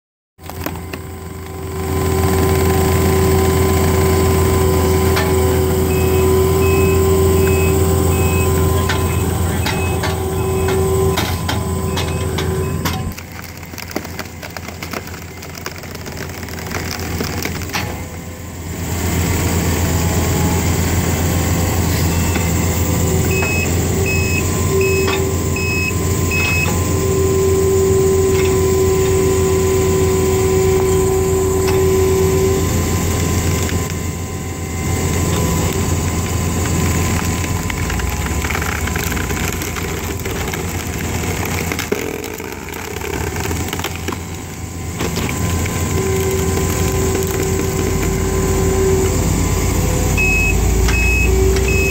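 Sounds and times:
diesel engine running: 0.4 - 51.9
steady whine: 0.4 - 51.9
short beeps: 5.8 - 13.0, 50.1 - 51.9
screw cone splitting logs: 12.4 - 18.1, 35.3 - 49.0.

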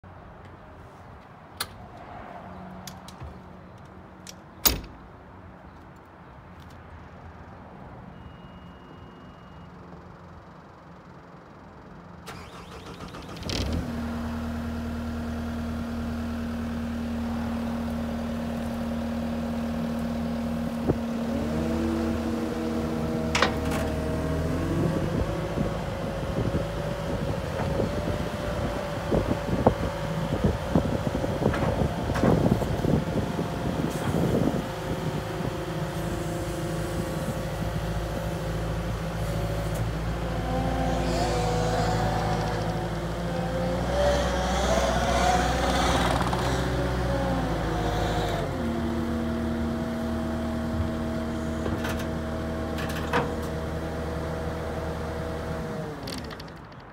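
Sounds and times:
diesel engine running and revving: 12.4 - 56.5.

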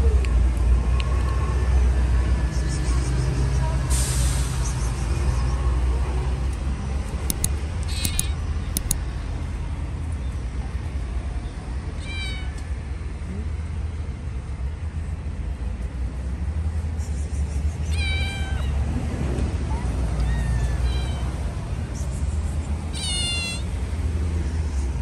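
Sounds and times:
low rumble of traffic: 0.0 - 25.0
cat meowing: 7.4 - 8.4, 12.0 - 12.6, 17.9 - 18.8, 20.2 - 21.4, 23.0 - 23.7.

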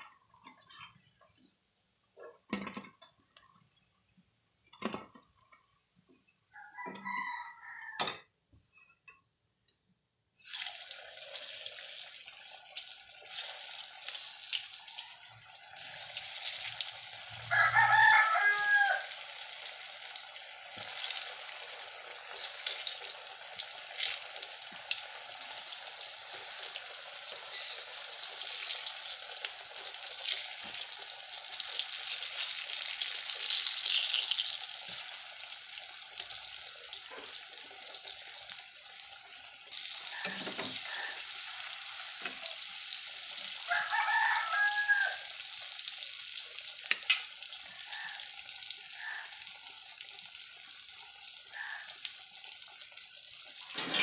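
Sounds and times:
oil sizzling loudly: 10.4 - 54.0.

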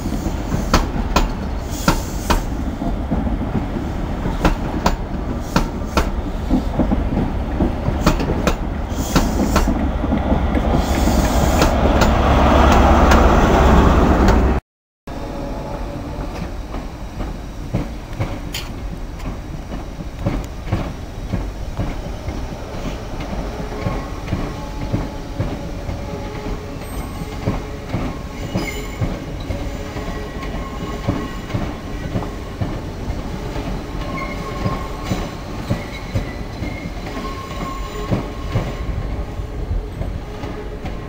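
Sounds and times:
train wheels clattering: 0.0 - 13.3
wheel flange squeals: 34.0 - 38.9.

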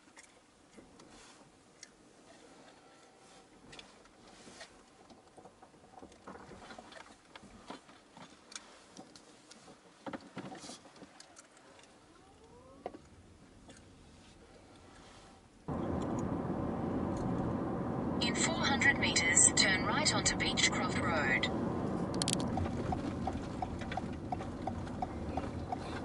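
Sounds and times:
car cabin noise: 15.7 - 26.0
faint rising whine: 15.7 - 26.0.

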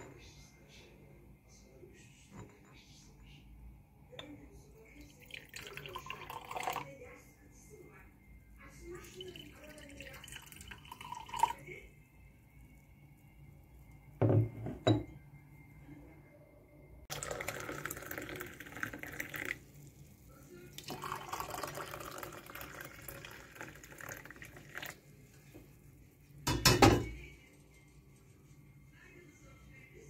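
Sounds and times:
tea pouring into mugs: 4.8 - 7.0, 8.9 - 11.9, 17.1 - 27.6.

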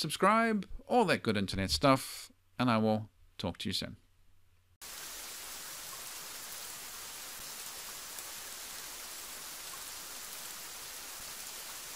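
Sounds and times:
steady rain: 4.8 - 11.9.

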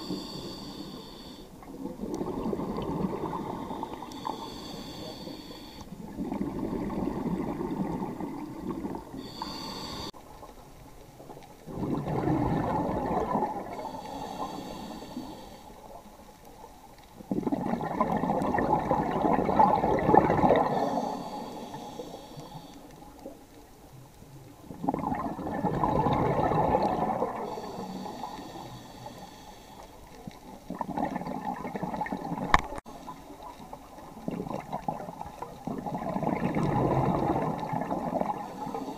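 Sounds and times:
regulator inhalation hiss: 0.0 - 1.6, 3.6 - 5.9, 9.2 - 10.2, 13.8 - 15.9, 20.7 - 22.9, 27.4 - 30.0, 38.3 - 38.9
exhaled bubbles gurgling: 0.0 - 23.5, 24.3 - 29.4, 30.0 - 38.9.

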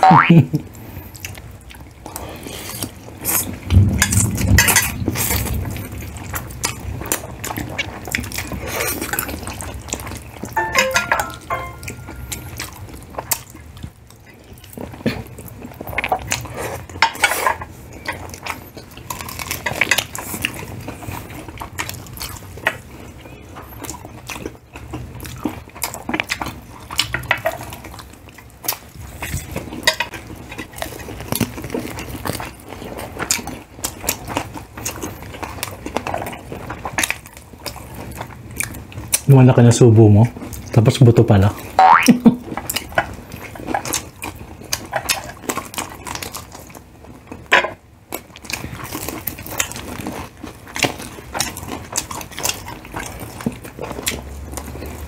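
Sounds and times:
cutlery clinking on plates: 10.6 - 12.6.

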